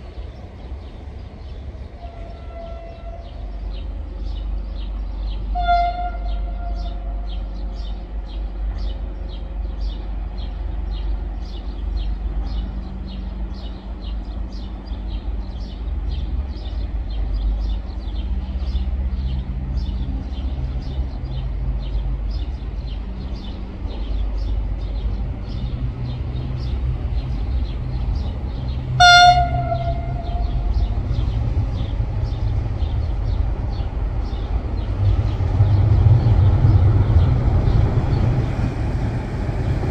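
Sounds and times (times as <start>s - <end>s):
train rumbling: 0.0s - 39.9s
train horn blasts: 2.0s - 3.4s, 5.5s - 7.4s, 29.0s - 30.9s.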